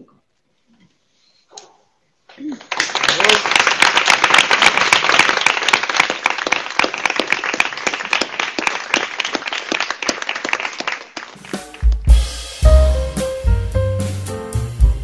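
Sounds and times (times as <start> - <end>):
audience applauding: 2.5 - 12.1.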